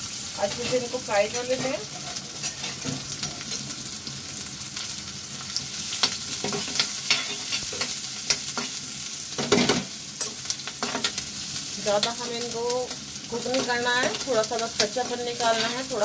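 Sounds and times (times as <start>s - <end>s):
food sizzling in oil: 0.0s - 16.0s
spatula scraping metal pan: 15.4s - 15.9s.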